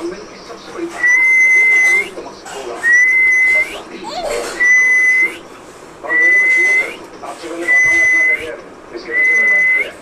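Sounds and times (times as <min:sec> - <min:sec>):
high whistle-like tone: 0:01.0 - 0:02.1, 0:02.8 - 0:03.8, 0:04.6 - 0:05.4, 0:06.1 - 0:07.0, 0:07.7 - 0:08.5, 0:09.1 - 0:10.0.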